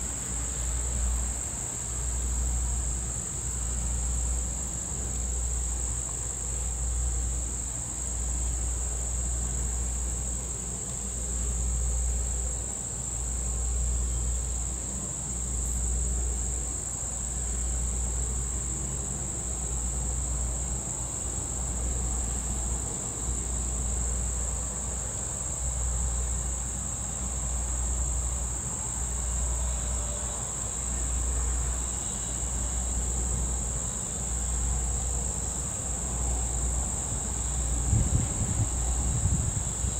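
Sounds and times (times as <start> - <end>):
insects buzzing: 0.0 - 39.9.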